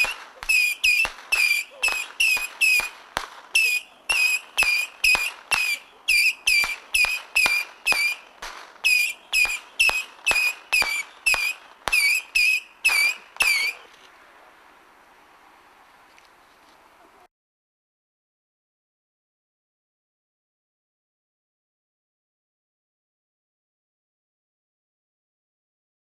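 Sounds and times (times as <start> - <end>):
firework launch pops and whistles: 0.0 - 14.0
faint hiss: 0.0 - 17.3.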